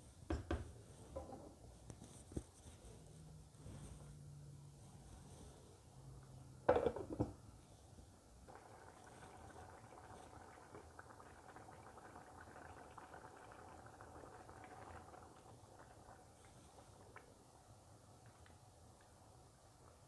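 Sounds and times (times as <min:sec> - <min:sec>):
pot bubbling at a boil: 0:08.3 - 0:20.0.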